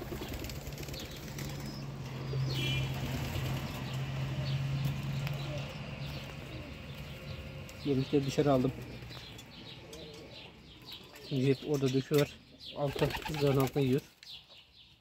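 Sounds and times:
pigeon wings flapping: 0:00.0 - 0:01.9, 0:02.8 - 0:03.9, 0:12.9 - 0:13.8.

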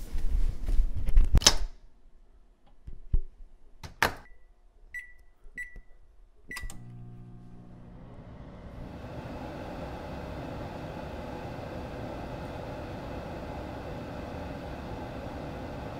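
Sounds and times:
appliance humming: 0:06.5 - 0:15.9.

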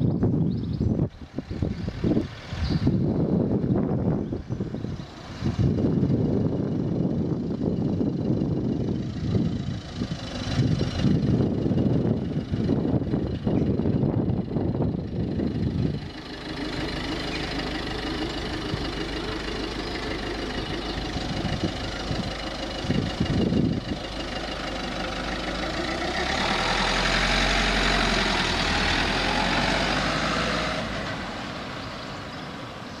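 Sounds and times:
low rumble: 0:00.0 - 0:32.4
car driving slowly: 0:00.0 - 0:33.0.

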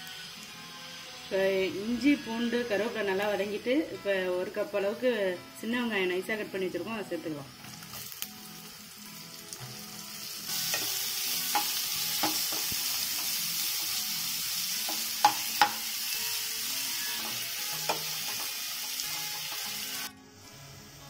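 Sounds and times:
onions sizzling in oil: 0:00.0 - 0:21.0
spatula knocking against pan: 0:11.5 - 0:12.7, 0:14.9 - 0:15.8.

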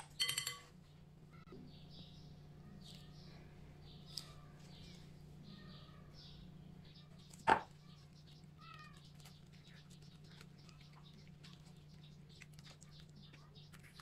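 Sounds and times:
wet squelches and clicks: 0:08.2 - 0:14.0.

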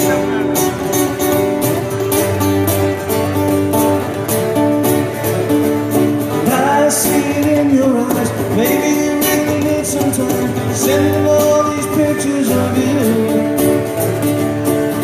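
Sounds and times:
strummed acoustic guitar: 0:00.0 - 0:15.0
person singing wordless line: 0:06.3 - 0:13.8.

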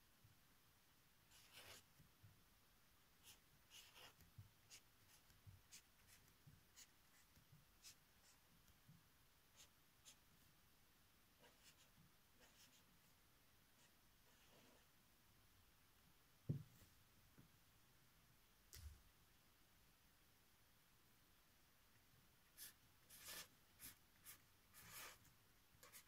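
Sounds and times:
pen scratching on paper: 0:01.3 - 0:01.9, 0:03.2 - 0:08.5, 0:09.6 - 0:10.2, 0:11.4 - 0:12.9, 0:13.8 - 0:14.8, 0:22.6 - 0:25.2, 0:25.8 - 0:26.0.

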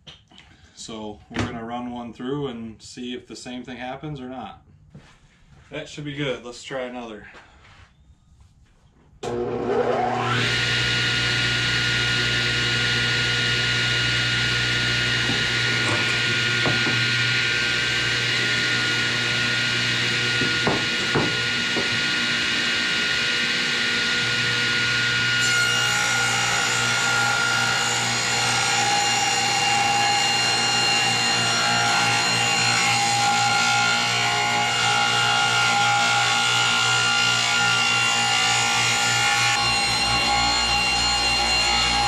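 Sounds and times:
table saw whine: 0:09.2 - 0:42.0
saw blade ripping wood: 0:14.5 - 0:18.7.

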